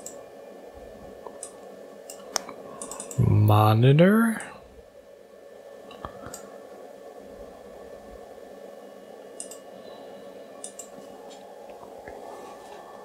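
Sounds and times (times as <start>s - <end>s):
computer mouse clicks: 0.0s - 0.2s, 1.3s - 3.2s, 6.3s - 6.5s, 9.4s - 9.6s, 10.6s - 11.0s
computer hum: 0.0s - 13.0s.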